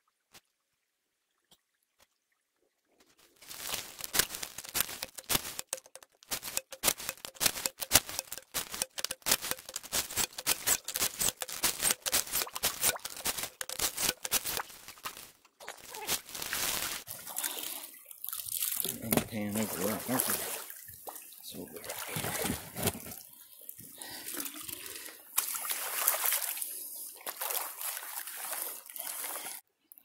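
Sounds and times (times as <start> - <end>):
gravel and water rattling through dredge: 3.2 - 15.6, 18.8 - 26.4.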